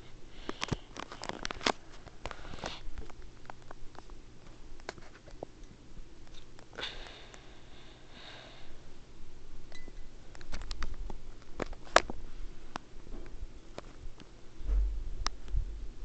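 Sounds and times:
ceiling fan humming: 0.0s - 16.0s
low rumble: 14.6s - 16.0s.

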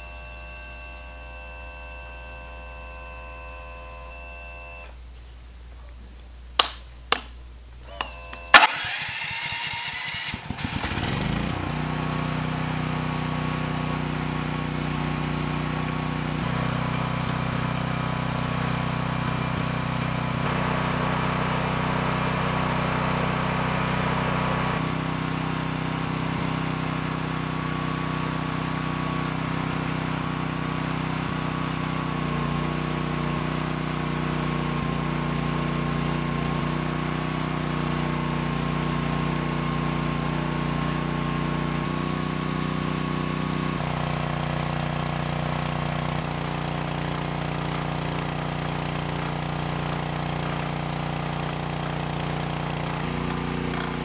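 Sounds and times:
electric starter cranking: 7.8s - 22.0s, 34.5s - 54.0s
generator engine running: 7.9s - 54.0s.

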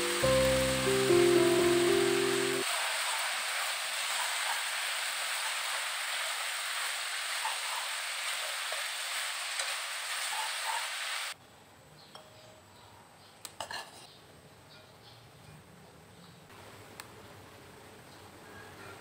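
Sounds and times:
noodles sizzling in hot oil: 0.0s - 11.4s.

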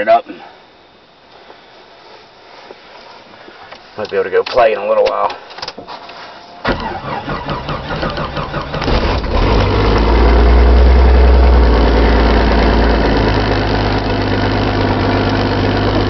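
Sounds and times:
engine starter cranking: 6.6s - 10.0s
car engine idling: 6.7s - 16.0s.

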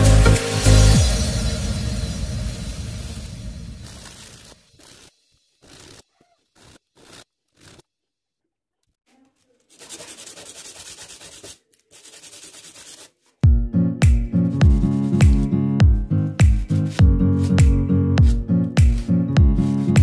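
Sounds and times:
background music with beat: 0.0s - 3.1s, 13.4s - 20.0s
rubbing on sandpaper: 3.8s - 7.8s, 9.4s - 13.4s, 14.4s - 15.5s, 16.4s - 20.0s.

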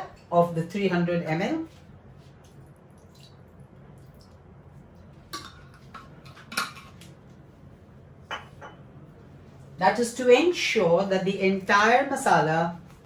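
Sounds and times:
cookware clinking: 5.3s - 7.0s, 8.3s - 8.8s.

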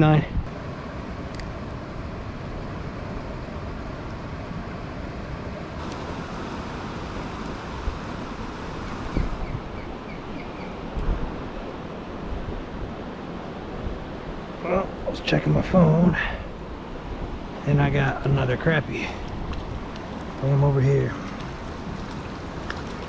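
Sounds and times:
river water rushing over rocks: 5.8s - 14.7s, 18.9s - 23.0s
wind bumps on microphone: 7.5s - 9.9s.

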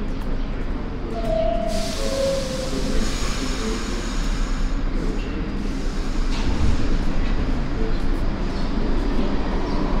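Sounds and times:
subway train rumbling: 0.0s - 10.0s.

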